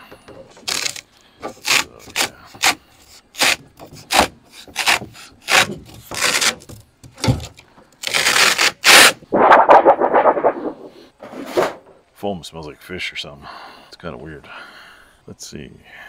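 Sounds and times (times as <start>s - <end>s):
sheet metal scraping and ripping: 8.0s - 11.9s.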